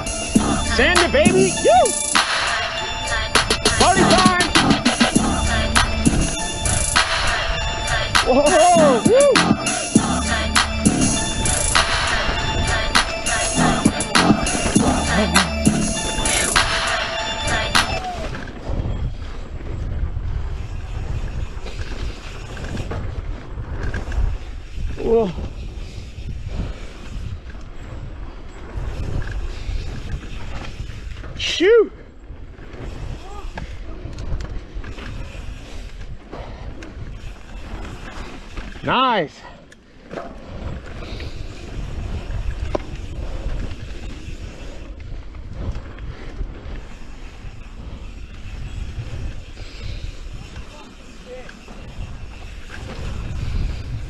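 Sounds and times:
bike tyres rattling on dirt: 0.0s - 54.0s
wind rumble on microphone: 3.5s - 38.9s, 40.0s - 54.0s.

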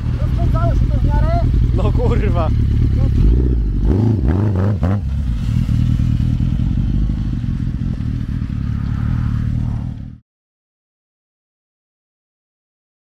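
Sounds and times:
vehicle engine running loud: 0.0s - 10.2s.

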